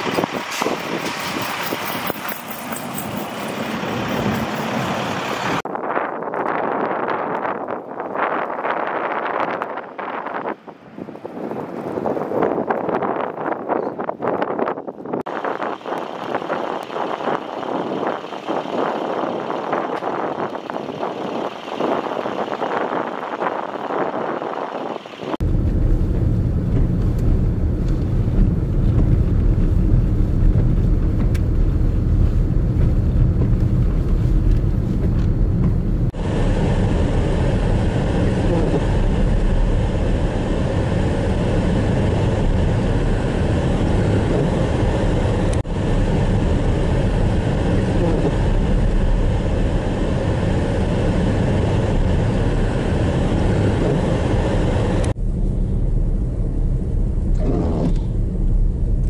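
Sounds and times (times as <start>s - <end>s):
vehicle and wind roar: 0.0s - 59.0s.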